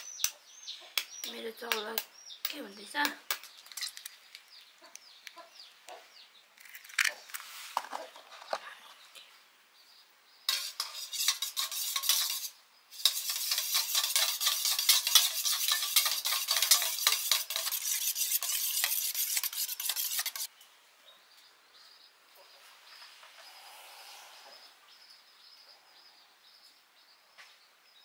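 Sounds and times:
metal utensil scraping cooking pan: 10.5 - 20.5.

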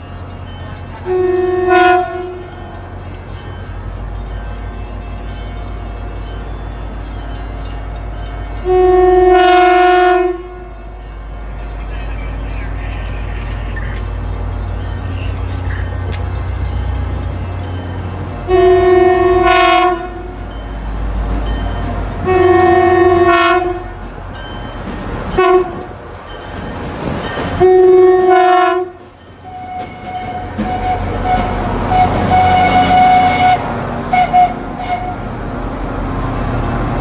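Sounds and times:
train rolling past: 0.0 - 37.0
locomotive air horn: 1.0 - 2.5, 8.6 - 10.8, 18.5 - 20.4, 22.2 - 24.0, 25.4 - 25.9, 27.6 - 35.3.

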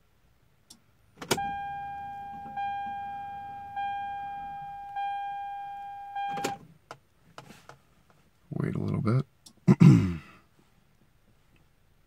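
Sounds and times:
ignition key click: 1.2 - 3.2, 6.2 - 6.6
car warning chime dinging: 1.2 - 6.6.

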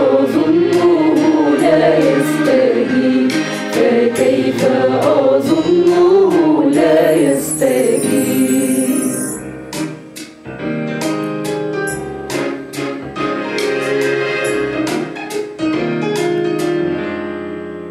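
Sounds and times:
choir singing a hymn: 0.0 - 9.4
instrumental music: 0.0 - 17.9.

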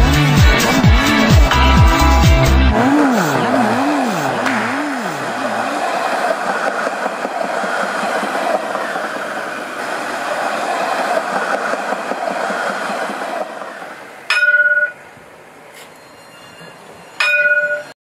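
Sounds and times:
tram rolling on rails: 0.2 - 17.9
tram warning bell ringing: 1.2 - 6.7, 14.2 - 15.2, 15.8 - 18.0.

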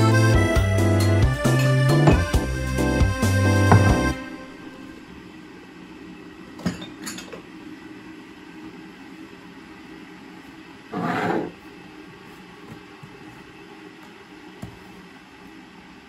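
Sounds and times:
cup knocking on desk: 2.0 - 2.4, 3.7 - 4.2
cup scraping across desk: 10.9 - 11.6.

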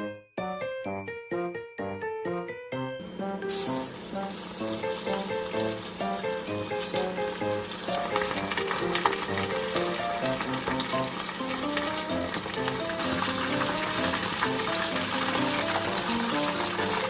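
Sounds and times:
chicken deep-frying in oil: 3.4 - 17.0.

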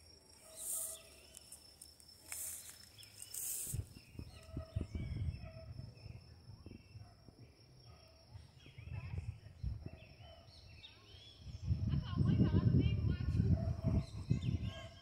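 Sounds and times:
insect buzzes: 0.0 - 4.9
cricket trill: 0.0 - 15.0
small bird chirps: 0.3 - 7.1.

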